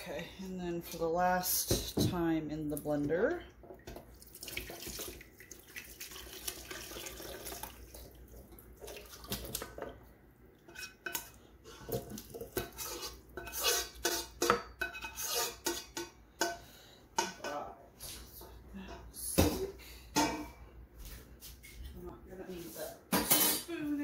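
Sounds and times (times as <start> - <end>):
soup pouring: 4.0 - 9.8
ladle scraping metal pot: 10.6 - 17.6.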